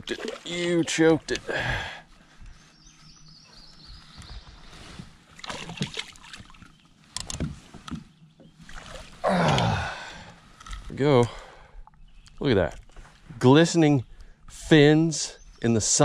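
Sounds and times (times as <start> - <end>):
knocks and rustles on boat deck: 7.2 - 8.6
short falling grunt: 9.2 - 10.2.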